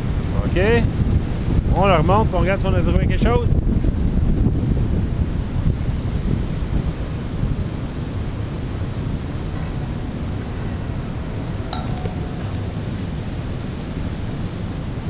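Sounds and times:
wind buffeting microphone: 0:00.0 - 0:15.0
metallic clink: 0:11.7 - 0:13.4.

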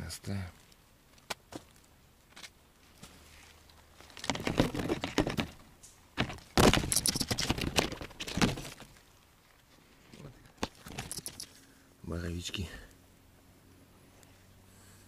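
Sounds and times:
dry rustling and crackling: 0:00.2 - 0:11.8.

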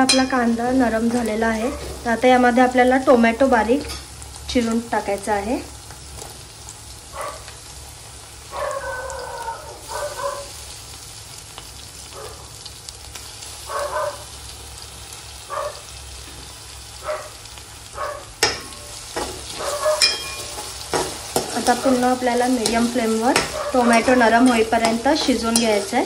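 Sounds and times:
vegetables sizzling in oil: 0:00.0 - 0:26.0
spatula stirring: 0:18.4 - 0:26.0.

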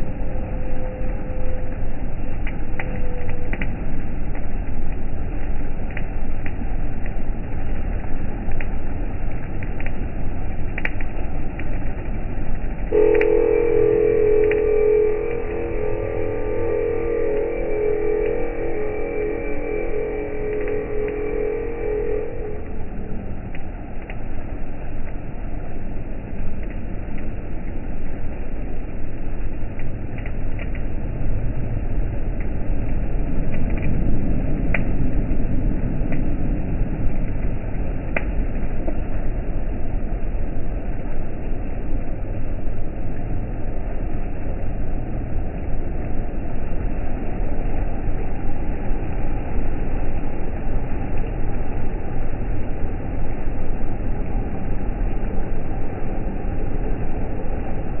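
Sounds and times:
ferry engine rumbling: 0:12.7 - 0:23.9.

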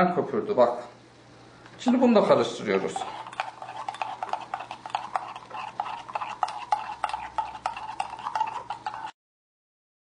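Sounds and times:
teaspoon clinking in metal pot: 0:02.8 - 0:09.1.

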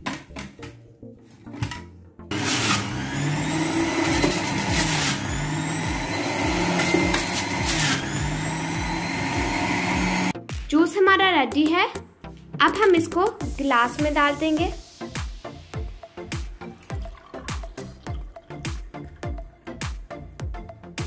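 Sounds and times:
electric juicer motor crushing fruit: 0:02.3 - 0:10.4.

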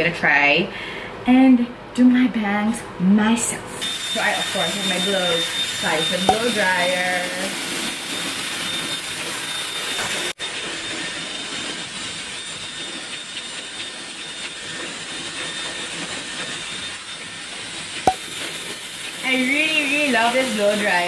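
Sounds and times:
hair dryer blowing air: 0:03.8 - 0:10.4, 0:18.1 - 0:21.0.

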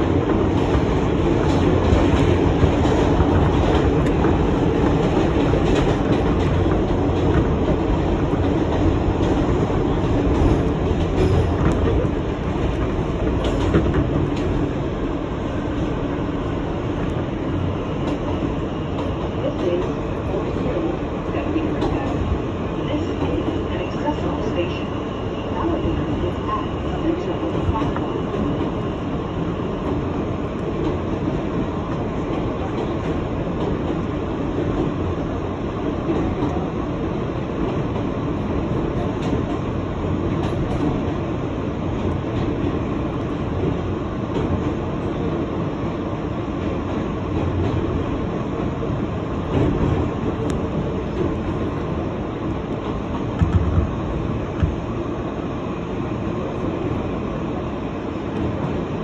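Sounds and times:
subway train wheels rumbling on rail: 0:00.0 - 0:59.0.

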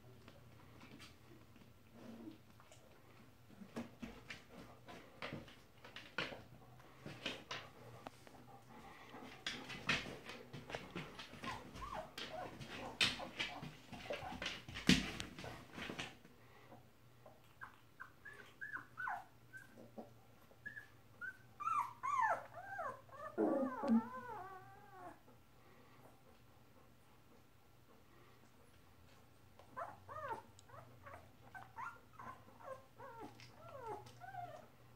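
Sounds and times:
puppies whimpering: 0:17.6 - 0:25.2.

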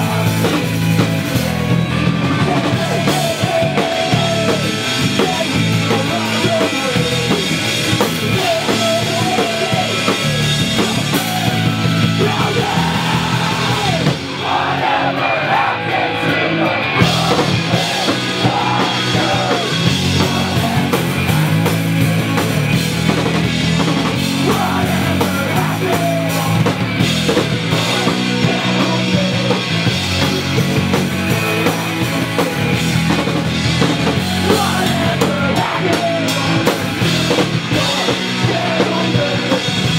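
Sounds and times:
shouted and sung vocals: 0:00.0 - 0:22.9, 0:23.7 - 0:39.9
bass: 0:00.0 - 0:39.9
distorted electric guitars: 0:00.0 - 0:39.9
drum kit: 0:00.0 - 0:39.9.

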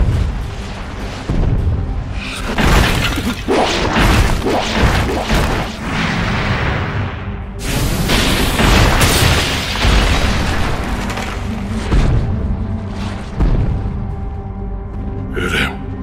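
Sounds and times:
heavy crashes and booms: 0:00.0 - 0:12.4
dramatic background music: 0:00.0 - 0:16.0.

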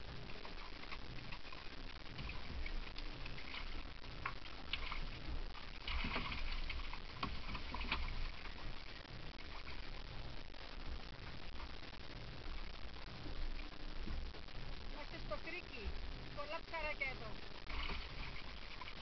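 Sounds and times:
water lapping against boat hull: 0:00.2 - 0:10.0, 0:17.7 - 0:19.0.

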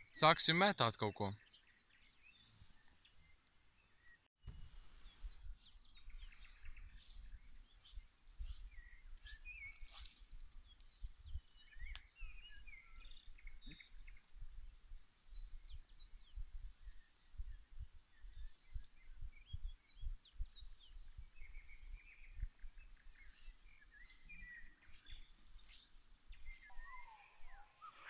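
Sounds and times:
birds chirping and singing: 0:01.0 - 0:28.0
wind buffeting microphone: 0:04.4 - 0:25.4.

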